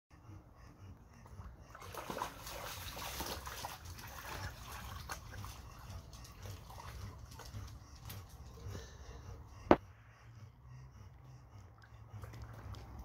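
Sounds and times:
dog splashing in puddle water: 1.7s - 7.5s.

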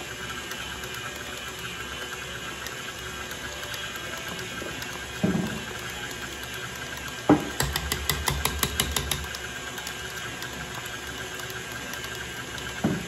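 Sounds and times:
stand mixer running: 0.0s - 13.0s.

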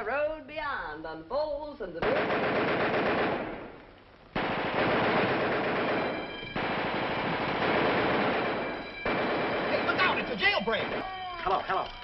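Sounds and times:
rapid gunfire: 2.0s - 3.7s, 4.4s - 11.0s.

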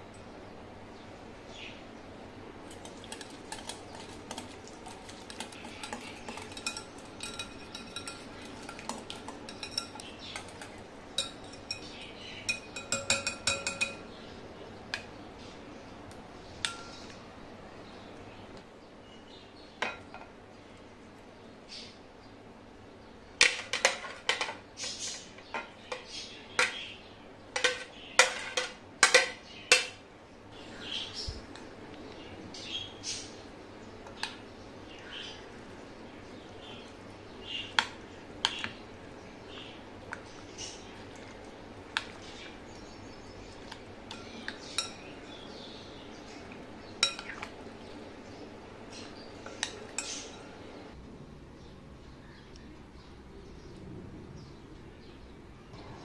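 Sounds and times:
metal spoon scraping a plate: 2.8s - 14.0s.

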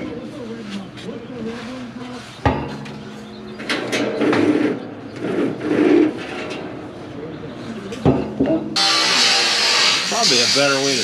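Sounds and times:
scraping and clattering: 2.4s - 6.9s.

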